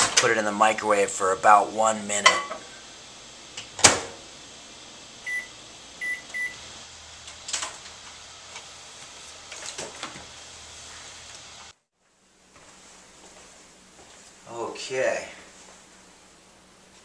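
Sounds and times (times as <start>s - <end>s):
microwave running hum: 0.0s - 11.7s
microwave keypad beeping: 5.2s - 6.6s.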